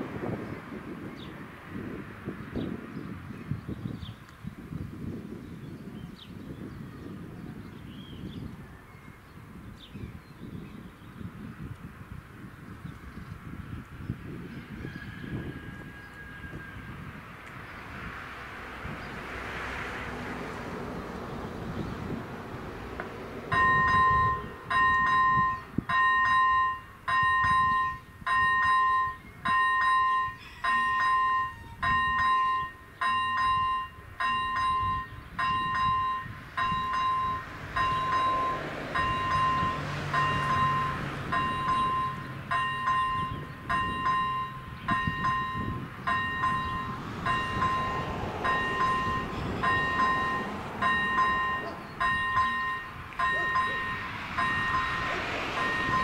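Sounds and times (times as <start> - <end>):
level crossing warning bell: 23.4 - 56.0.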